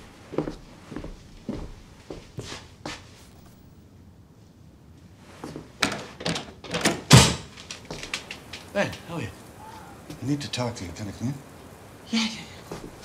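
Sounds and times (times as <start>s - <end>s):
footsteps on hard floor: 0.0s - 3.1s, 12.7s - 13.0s
door thunk: 5.8s - 8.2s
door handle and latch clicks: 5.8s - 8.3s.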